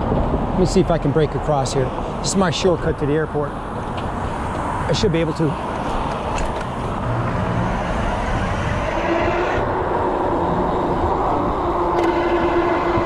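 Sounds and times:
road traffic: 0.0s - 13.0s
steady whine: 0.0s - 13.0s
wind rushing over microphone: 0.0s - 13.0s.

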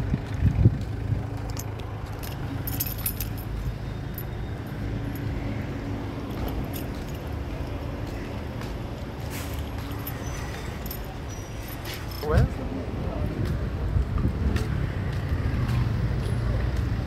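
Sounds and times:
vehicle engine rumbling: 0.0s - 17.0s
light metallic clinks: 1.5s - 4.4s.

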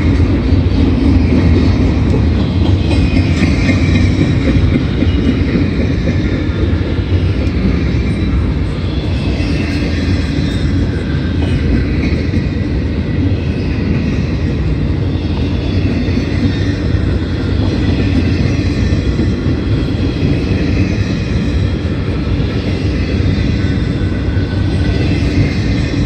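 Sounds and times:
train wheels rolling on rails: 0.0s - 26.0s.

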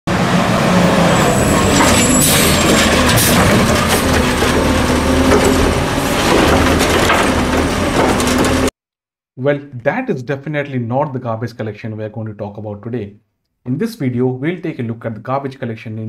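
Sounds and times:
garbage truck engine hum: 0.1s - 8.7s
hydraulic arm lifting cart: 0.3s - 8.7s
mechanical clanks: 1.6s - 8.7s.

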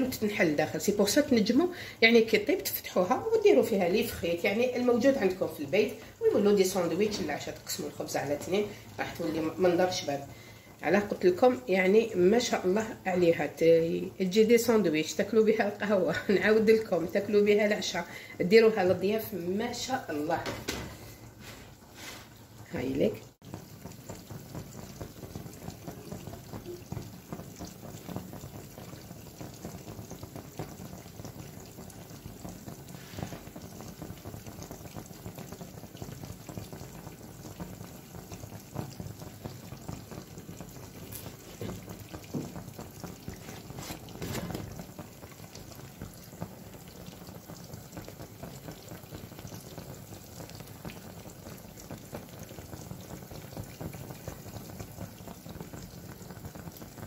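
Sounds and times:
brief louder cooking noises: 20.4s - 22.7s, 41.0s - 45.0s
flatbread hissing in a pan: 20.7s - 57.0s.

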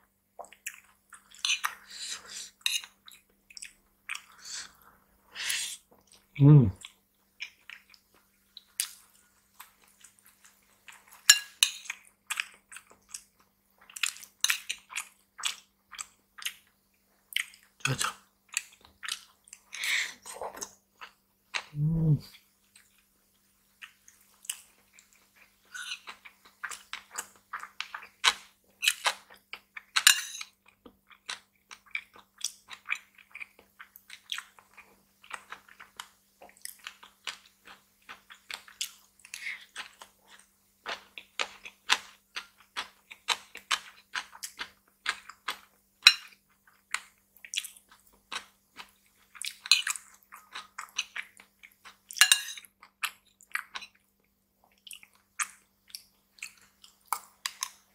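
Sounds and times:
metal spoon against ceramic bowl: 52.2s - 52.6s.

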